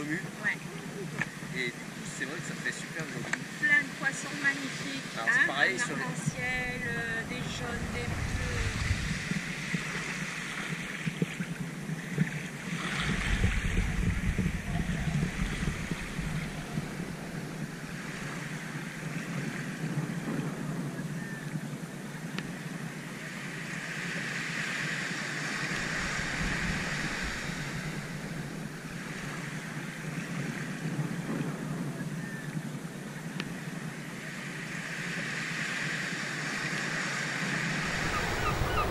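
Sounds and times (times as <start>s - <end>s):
small waves washing on sand: 0.0s - 38.9s
wind buffeting microphone: 6.0s - 21.8s, 25.2s - 32.7s, 37.4s - 38.9s.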